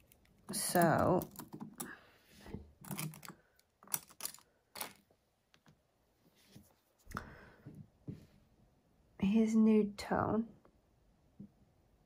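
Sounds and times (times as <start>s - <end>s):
plastic sticks clicking: 0.0s - 2.0s, 2.8s - 5.0s.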